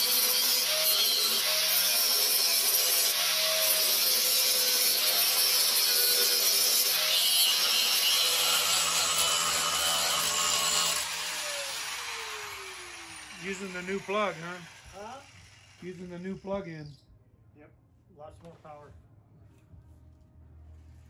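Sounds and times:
angle grinder grinding metal: 0.0 - 16.8
grinder motor winding down: 9.4 - 16.0.

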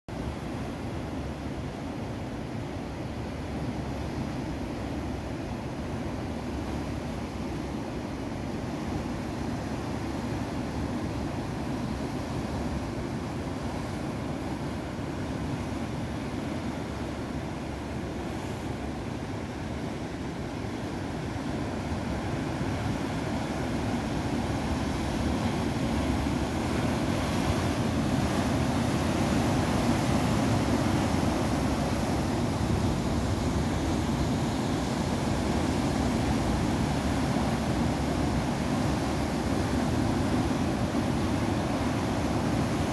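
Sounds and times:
surf breaking over rocks: 21.6 - 42.9.

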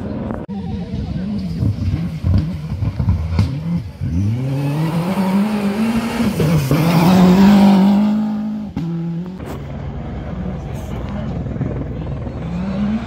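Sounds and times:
rally car engine accelerating: 0.0 - 13.0
engine running steadily: 5.4 - 13.0.

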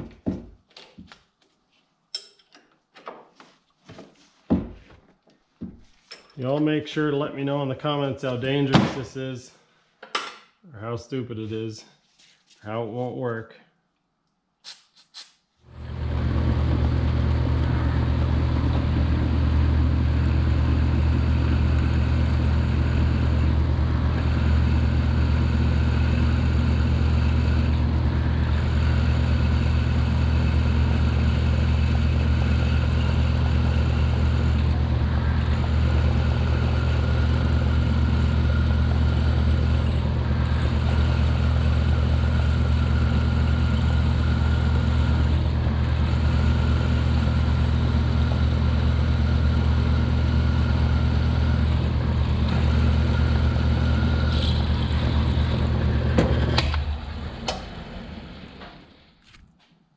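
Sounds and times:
drill motor humming: 15.8 - 58.6.

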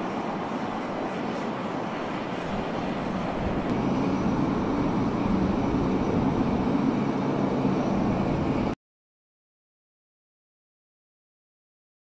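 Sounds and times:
aircraft engine noise: 0.0 - 8.8.

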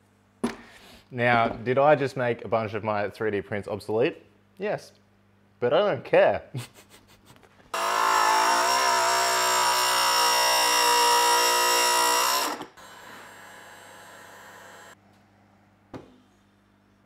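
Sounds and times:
power tool motor running: 7.7 - 15.0.

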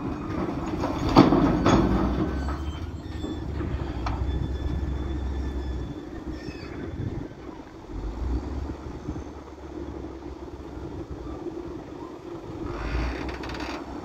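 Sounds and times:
diesel engine running: 0.0 - 14.0
rock crashing into truck bed: 0.3 - 2.6.

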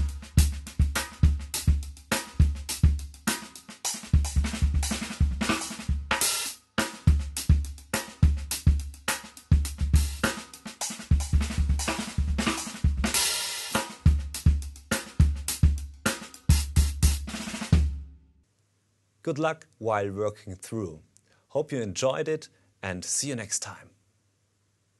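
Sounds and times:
drum kit playing: 0.0 - 18.2.

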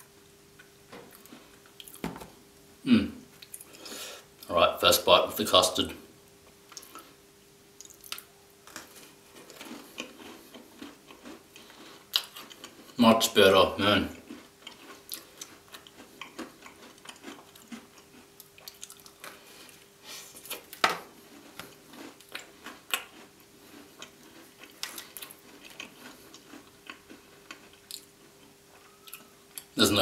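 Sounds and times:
close chewing with crunches: 7.8 - 13.0, 14.0 - 29.8.

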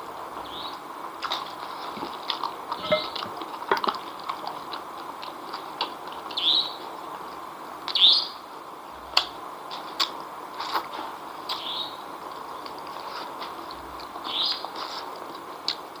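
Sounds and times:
wet lip smacks and clicks: 9.1 - 9.4, 10.0 - 10.2.

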